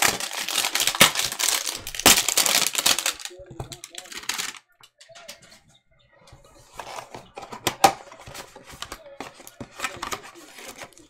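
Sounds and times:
plastic wrapping crinkling: 0:00.0 - 0:04.7.

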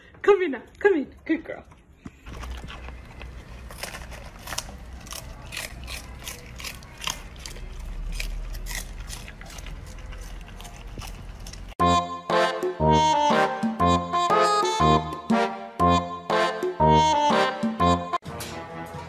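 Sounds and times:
puppy chewing cabbage leaves: 0:01.7 - 0:12.5.

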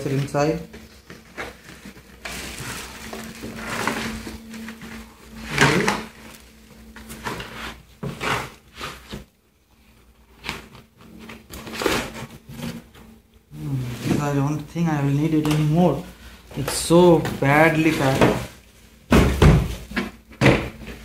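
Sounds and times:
plastic packing crinkling: 0:00.0 - 0:13.3
cardboard scraping and rustling: 0:00.0 - 0:16.0, 0:16.6 - 0:21.0.

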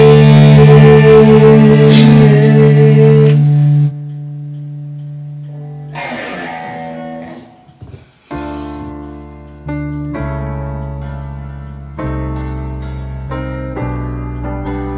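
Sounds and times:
band music with guitar: 0:05.9 - 0:08.1
strummed guitar chord: 0:06.0 - 0:07.8.

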